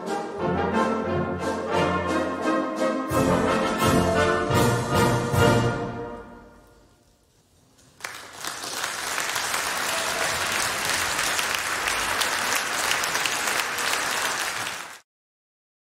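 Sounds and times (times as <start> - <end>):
audience applause: 8.0 - 15.1.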